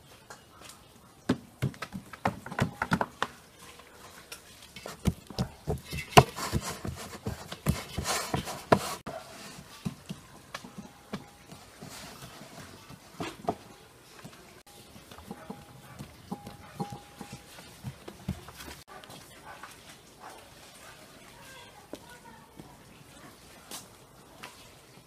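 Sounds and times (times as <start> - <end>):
hands patting dough in metal pan: 4.1 - 18.9.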